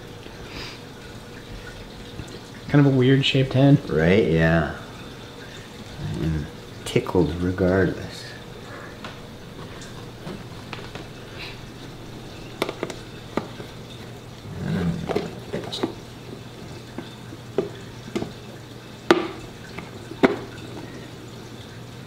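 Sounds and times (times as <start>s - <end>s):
plastic lid clicks and knocks: 12.6s - 13.7s.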